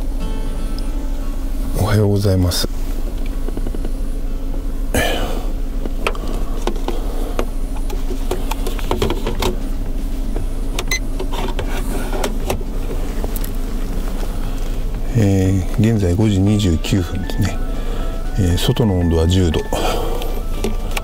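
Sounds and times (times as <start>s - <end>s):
low mechanical hum: 0.0s - 21.0s
rustling noise: 2.7s - 4.0s, 11.2s - 15.0s.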